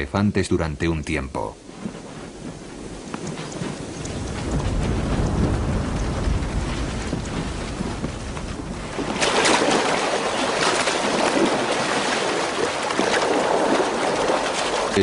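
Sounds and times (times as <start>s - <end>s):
elephants splashing in water: 8.5s - 15.0s.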